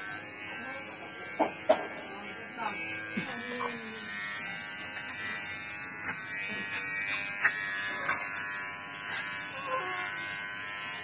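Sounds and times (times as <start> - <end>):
electric hair trimmer buzzing: 0.0 - 11.0.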